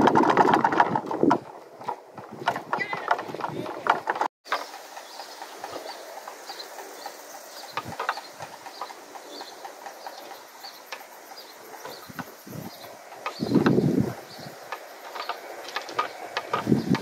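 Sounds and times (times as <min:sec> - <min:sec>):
wind rumble on microphone: 0:00.0 - 0:04.3, 0:07.7 - 0:08.5, 0:11.7 - 0:17.0
small birds chirping: 0:02.4 - 0:17.0.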